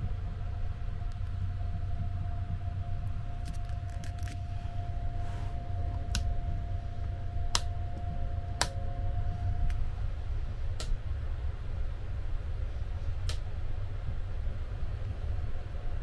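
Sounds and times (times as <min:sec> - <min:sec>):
train rumble: 0:00.0 - 0:16.0.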